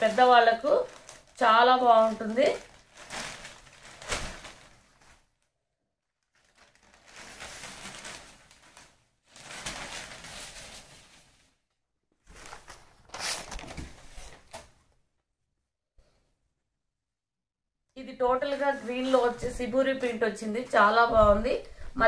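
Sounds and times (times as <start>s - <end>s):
fabric rustling: 0.0s - 5.5s, 6.1s - 14.7s, 18.3s - 22.0s.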